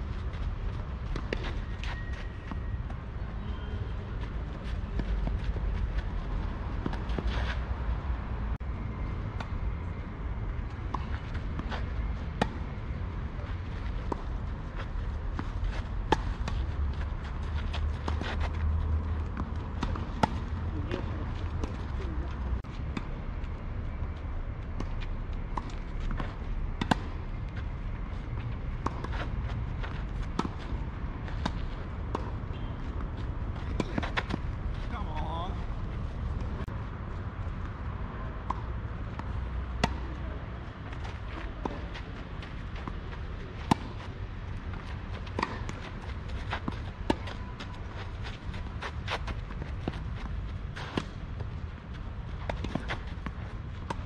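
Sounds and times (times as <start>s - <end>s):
tennis ball bouncing: 19.2s - 21.8s, 30.3s - 30.6s, 38.4s - 40.2s, 42.7s - 50.1s, 52.4s - 54.0s
racket striking tennis ball: 44.7s - 47.4s.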